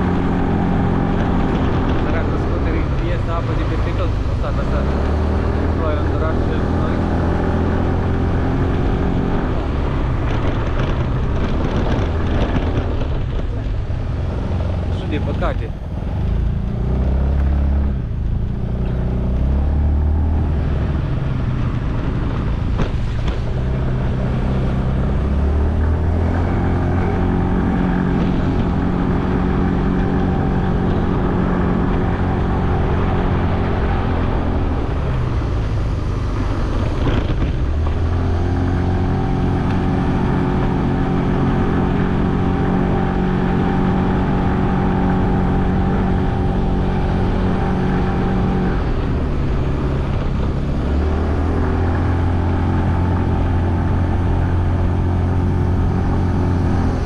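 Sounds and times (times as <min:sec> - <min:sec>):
wind and road noise: 0:00.0 - 0:57.0.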